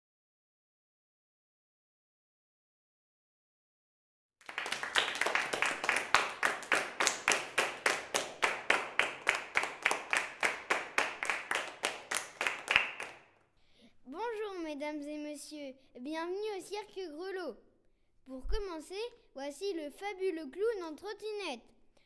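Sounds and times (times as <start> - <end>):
hands clapping: 4.4 - 13.4.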